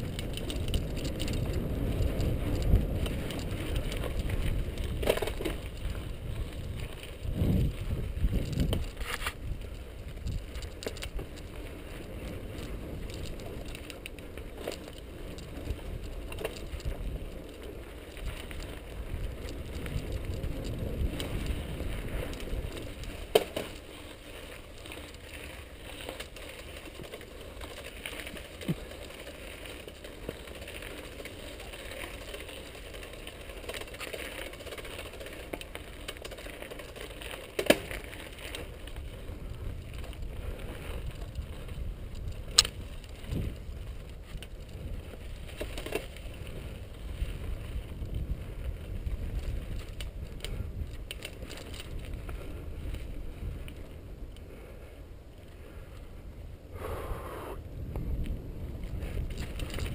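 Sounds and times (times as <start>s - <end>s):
wind on microphone: 0.0s - 13.8s, 38.7s - 54.9s, 55.6s - 59.9s
bike rattling over bumps: 0.0s - 56.9s, 57.7s - 59.9s
bike tyres crunching on dirt: 0.0s - 59.9s.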